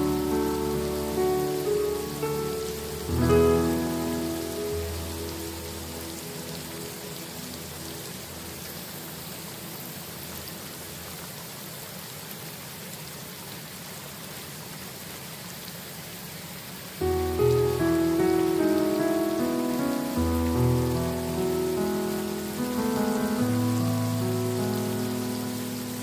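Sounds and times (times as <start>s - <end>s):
piano notes: 0.0s - 9.8s, 17.0s - 26.0s
steady rain falling: 0.0s - 26.0s.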